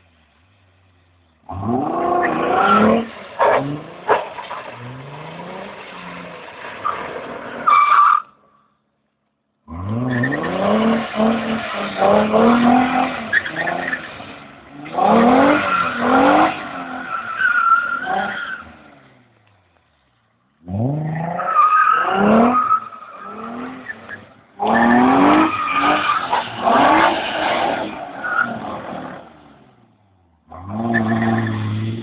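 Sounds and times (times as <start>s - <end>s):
car engine revving hard: 1.5s - 6.4s, 9.7s - 17.2s, 22.0s - 29.5s, 30.5s - 32.0s
tyre squeals: 15.4s - 18.8s.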